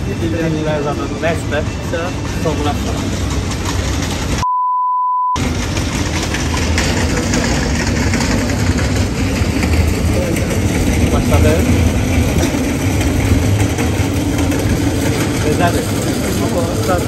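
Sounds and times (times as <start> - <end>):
outdoor street noise: 0.0 - 4.5, 5.4 - 17.0
censor bleep: 4.4 - 5.4
low rumble: 5.4 - 17.0.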